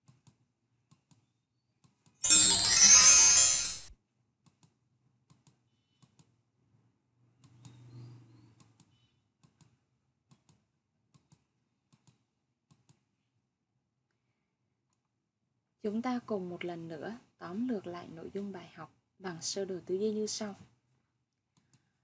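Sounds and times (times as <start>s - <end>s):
bright sound effect: 2.2s - 3.9s
computer mouse clicks: 8.6s - 13.0s.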